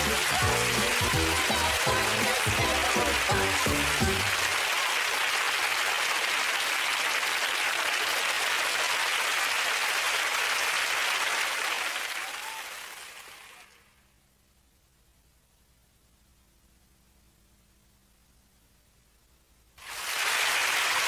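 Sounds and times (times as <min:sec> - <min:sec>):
audience applauding: 0:00.0 - 0:13.9, 0:19.8 - 0:21.0.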